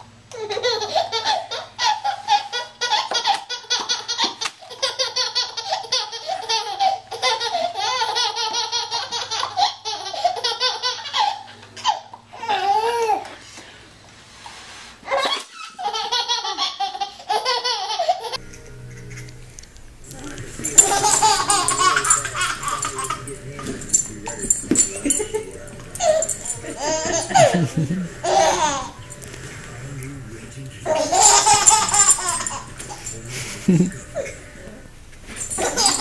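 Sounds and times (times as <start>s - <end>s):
baby laughing hysterically: 0.3s - 13.3s, 15.1s - 18.4s, 20.6s - 29.0s, 30.8s - 33.1s, 35.5s - 36.0s.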